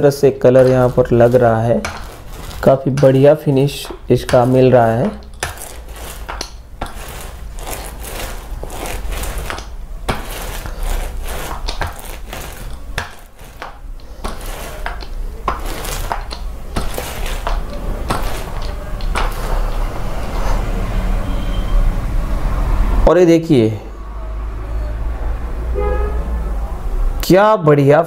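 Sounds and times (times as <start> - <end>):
paint roller sticky crackling: 0.0 - 20.8.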